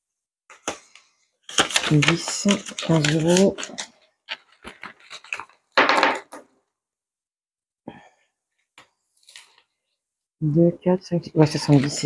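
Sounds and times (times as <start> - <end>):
plastic pages and paper rustling: 0.5 - 5.8, 9.1 - 9.8, 11.5 - 12.0.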